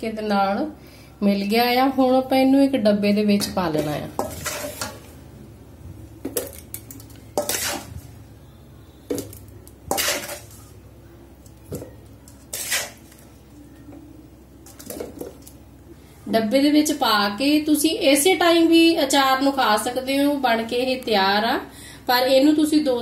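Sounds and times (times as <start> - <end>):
spoon scraping a steel bowl: 3.7 - 5.2, 6.4 - 8.2, 9.0 - 10.8, 12.2 - 13.2.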